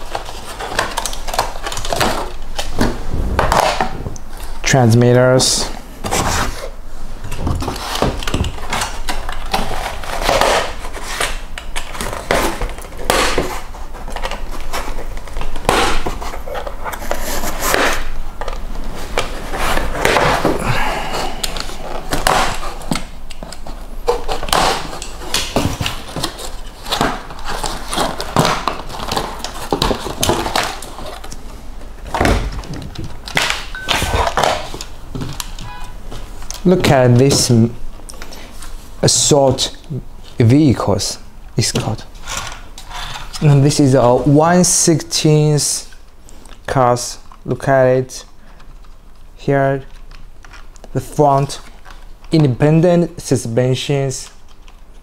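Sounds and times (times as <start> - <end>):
cardboard flaps scraping: 0.0 - 4.6, 18.8 - 23.0.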